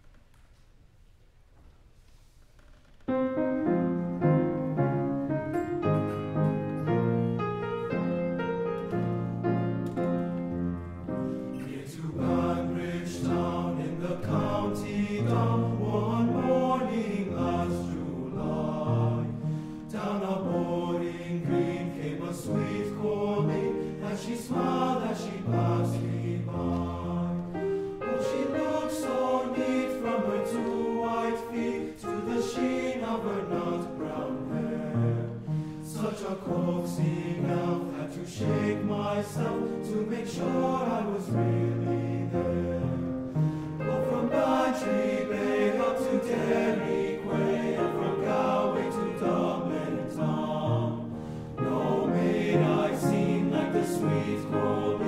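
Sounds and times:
men's choir singing: 11.3 - 55.0.

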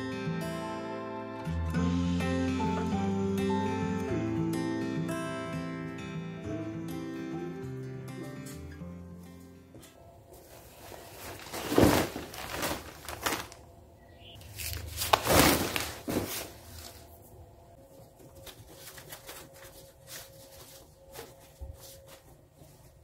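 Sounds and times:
plastic bags rustling: 10.3 - 23.0.

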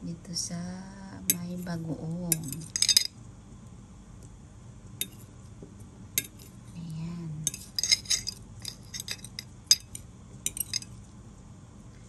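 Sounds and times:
utensil clinking on ceramic plate: 2.3 - 3.1, 5.0 - 5.2, 6.2 - 6.5, 7.4 - 11.0.

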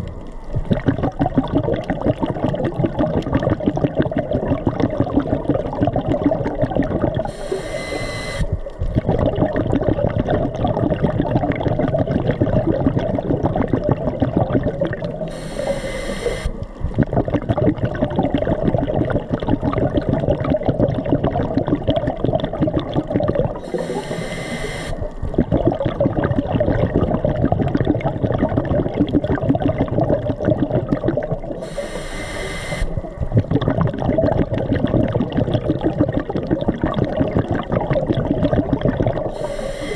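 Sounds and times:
exhaled bubbles gurgling: 0.0 - 39.9
regulator inhalation hiss: 7.3 - 8.5, 15.3 - 16.6, 23.6 - 25.1, 31.6 - 33.0, 39.3 - 39.9.

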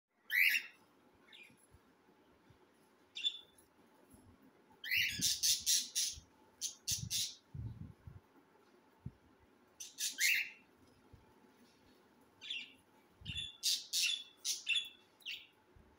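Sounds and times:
cockatiel chicks calling: 4.8 - 7.4, 9.8 - 10.6, 13.4 - 15.4.

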